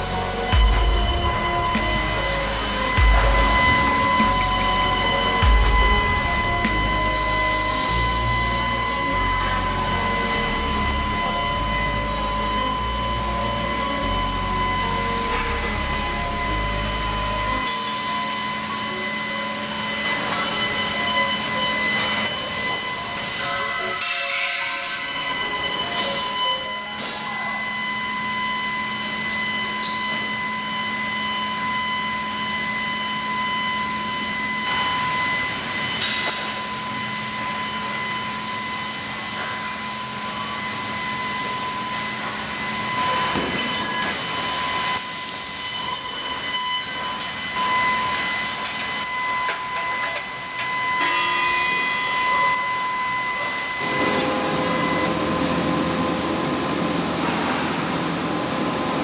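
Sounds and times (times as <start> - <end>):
high hissing: 0.0 - 17.6
factory machinery whine: 0.0 - 59.0.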